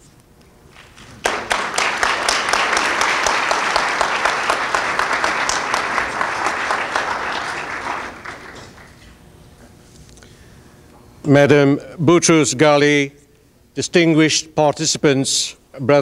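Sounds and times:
audience applauding: 0.7s - 9.2s.

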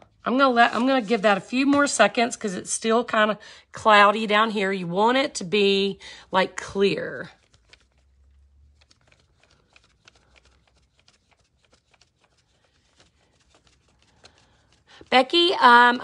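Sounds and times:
hands handling paper notepad: 0.0s - 2.1s, 7.3s - 15.1s.

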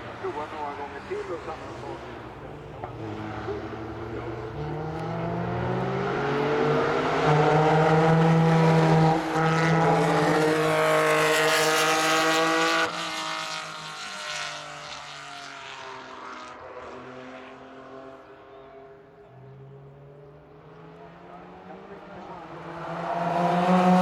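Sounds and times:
sports car engines accelerating: 0.0s - 24.0s.

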